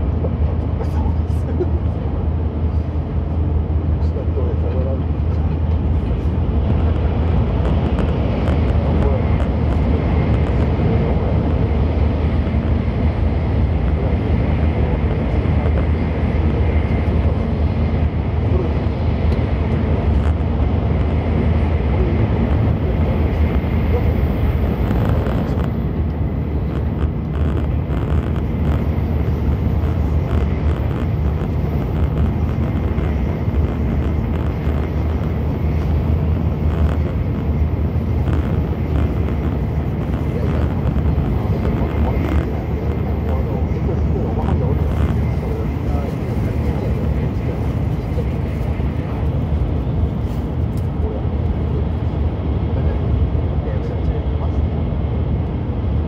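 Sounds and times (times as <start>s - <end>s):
train cabin low rumble: 0.0s - 56.0s
faint high whine: 7.3s - 52.1s.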